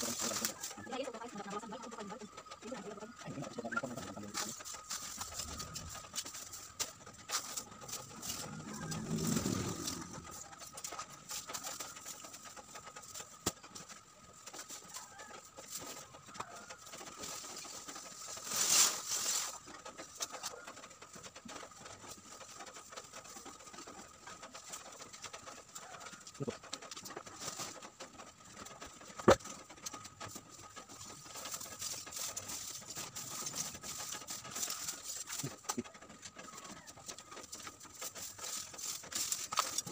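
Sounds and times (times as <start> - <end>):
plastic bags rustling: 0.0 - 1.1, 3.8 - 20.7, 30.4 - 39.9.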